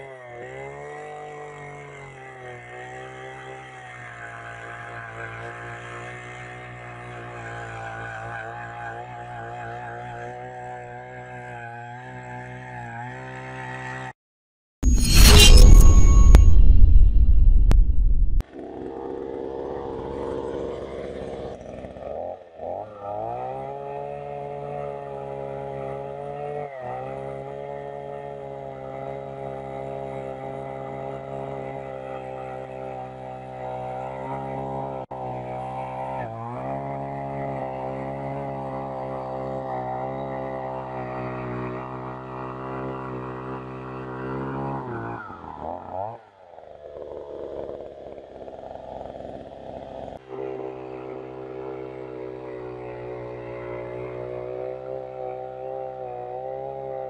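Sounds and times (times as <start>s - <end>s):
loud intro sound: 14.8s - 18.4s
earth auger engine drilling: 49.9s - 57.0s.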